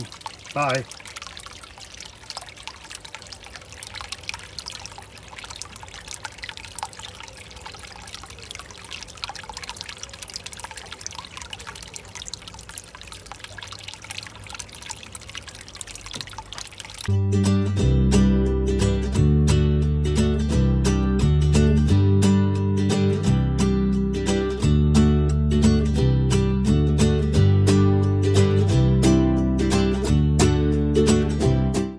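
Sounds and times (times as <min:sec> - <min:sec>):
water trickling into pond: 0:00.0 - 0:21.0.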